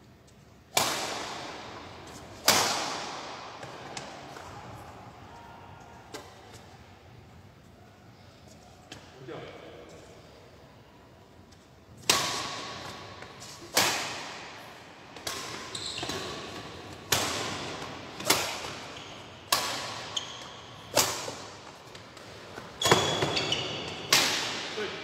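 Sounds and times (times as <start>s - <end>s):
rackets hitting shuttlecock: 0.6s - 4.7s, 12.0s - 24.8s.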